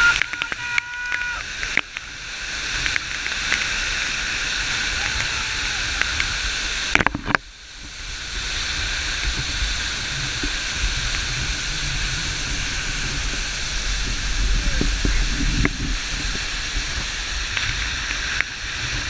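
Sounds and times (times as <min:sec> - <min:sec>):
waterfall rushing: 0:00.0 - 0:19.0.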